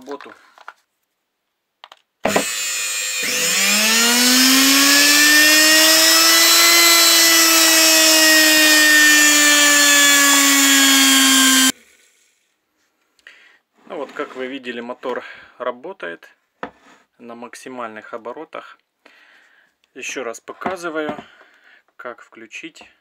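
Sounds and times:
electric motor whining: 2.3s - 11.7s.

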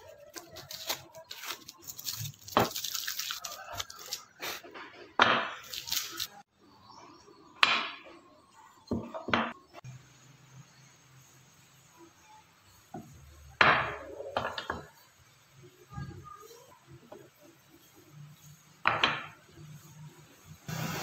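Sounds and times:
paper rustling: 0.0s - 4.6s, 5.6s - 6.4s.

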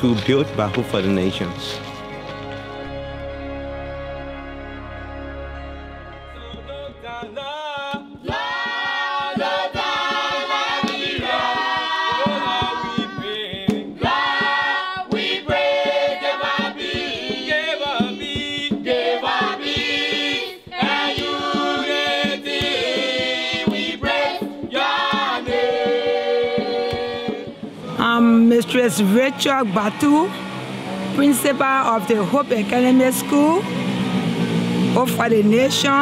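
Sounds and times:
choir singing: 8.2s - 34.6s.

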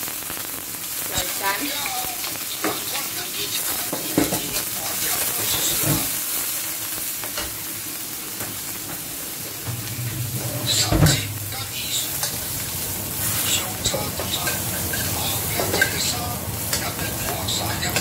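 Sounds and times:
fish frying in hot oil: 0.0s - 18.0s
metal ladle scraping a wok: 11.3s - 17.0s.

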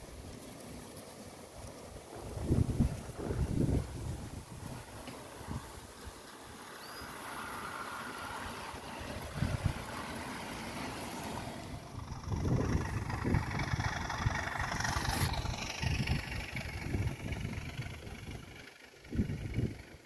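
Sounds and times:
model trains rolling on track: 0.0s - 20.0s
wind buffeting microphone: 1.9s - 6.2s, 8.7s - 10.1s, 11.7s - 20.0s.

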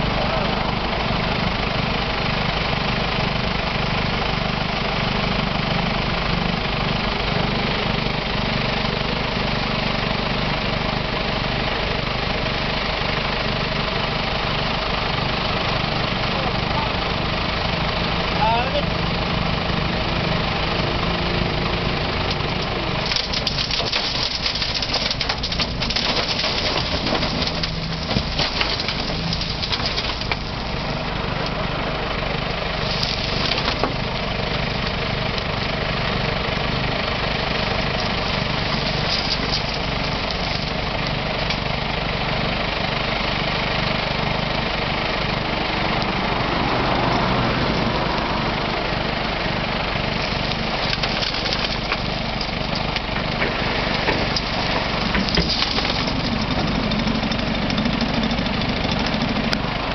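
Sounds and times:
digger diesel engine running: 0.0s - 59.9s
rock and gravel scraping: 22.3s - 31.0s, 32.7s - 34.7s, 37.4s - 41.4s, 50.1s - 59.4s.

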